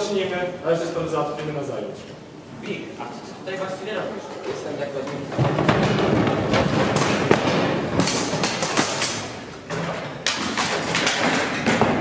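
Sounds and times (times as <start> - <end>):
noisy clatter: 4.5 - 12.0
irregular thuds and knocks: 5.3 - 9.0.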